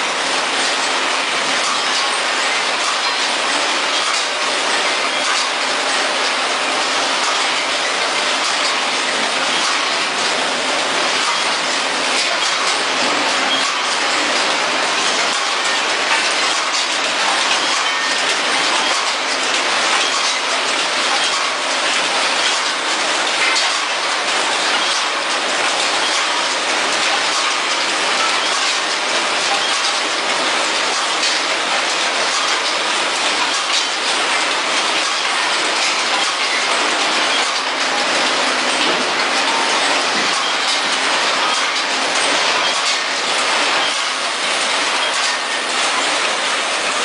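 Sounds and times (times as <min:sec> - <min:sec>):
packaging machines clattering and hissing: 0:00.0 - 0:47.0.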